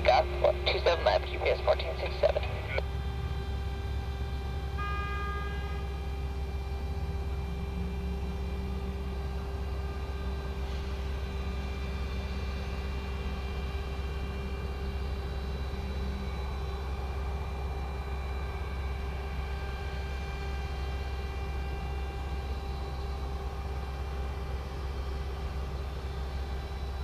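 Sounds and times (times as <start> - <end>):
deep engine rumble: 0.0 - 4.9
jet engines whining: 0.0 - 12.5.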